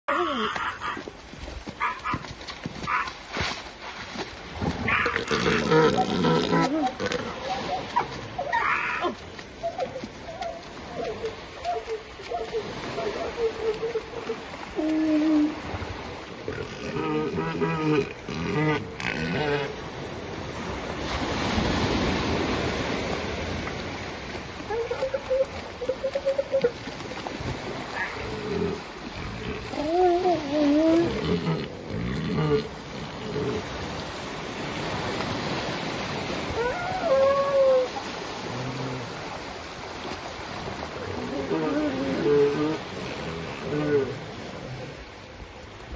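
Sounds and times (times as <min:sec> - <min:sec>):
small waves washing on beach: 0:00.1 - 0:45.9
elephant seals calling: 0:04.9 - 0:15.7, 0:24.6 - 0:27.1, 0:27.9 - 0:33.7, 0:36.5 - 0:38.1.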